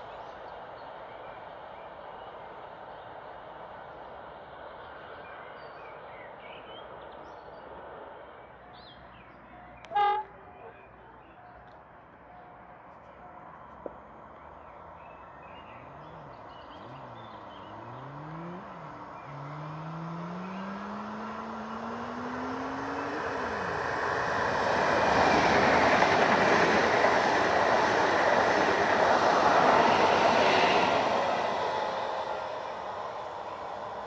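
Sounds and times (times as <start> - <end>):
train wheels rumbling on rail: 19.8 - 34.0.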